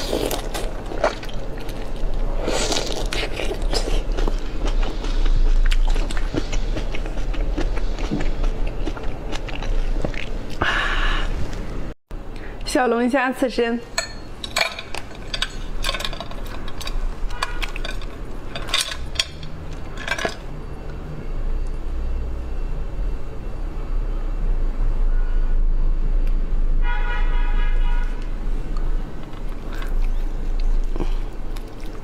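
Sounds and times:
brief steady tone: 20.7 - 28.0.

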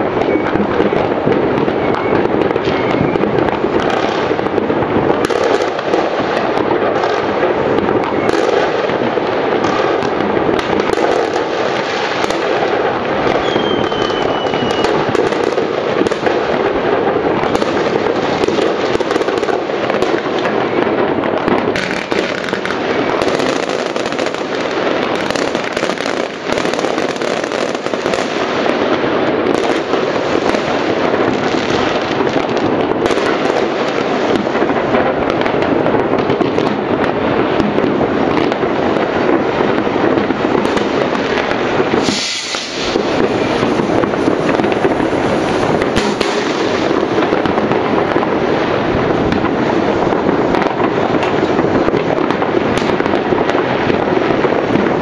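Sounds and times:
falling firework whistle: 0.0 - 4.5, 7.9 - 9.0, 9.6 - 16.3, 41.8 - 47.6
fireworks crackling and popping: 0.0 - 55.0.

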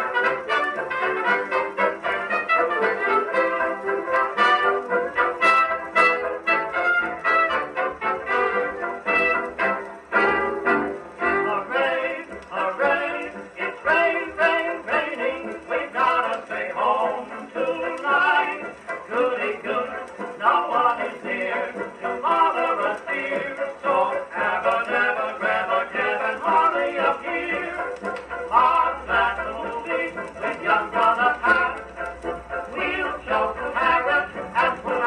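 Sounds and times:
dance orchestra on a phonograph: 0.0 - 35.0
vocal chorus singing: 11.2 - 35.0.

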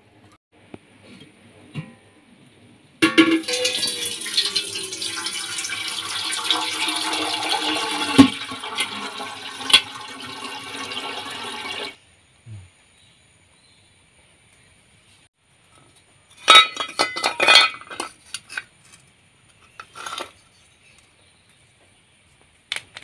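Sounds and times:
water pouring into steel pot: 3.4 - 12.0.

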